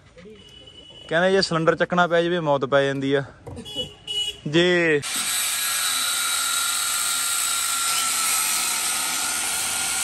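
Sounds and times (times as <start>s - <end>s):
power tool whining: 5.0s - 10.0s.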